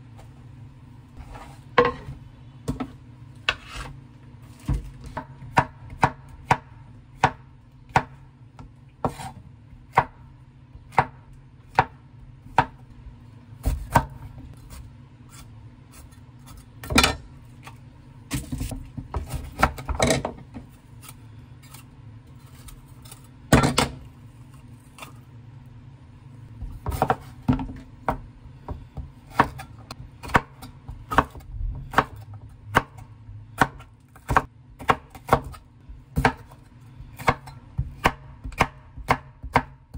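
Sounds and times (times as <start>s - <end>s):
knife chopping on wooden board: 4.6s - 12.8s, 26.6s - 33.0s, 33.6s - 39.9s.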